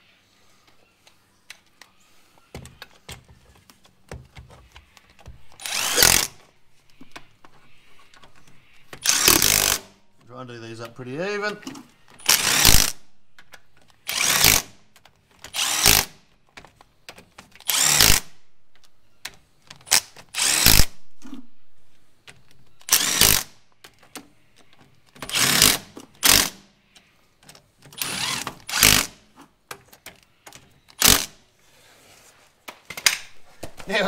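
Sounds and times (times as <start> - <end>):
impact driver hammering bolts: 8.9 - 9.9, 27.9 - 29.2.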